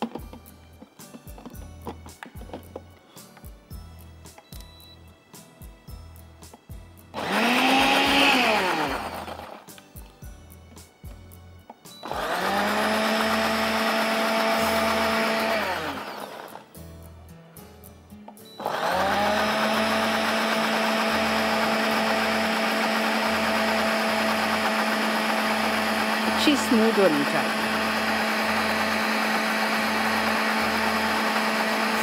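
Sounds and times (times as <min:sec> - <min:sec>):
electric blender grinding: 0:07.1 - 0:09.7, 0:12.0 - 0:16.8, 0:18.6 - 0:32.0.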